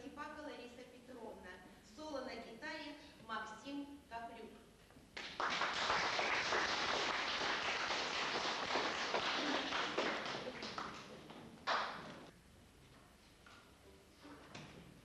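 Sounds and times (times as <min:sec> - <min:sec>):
audience applauding: 0:05.2 - 0:12.3.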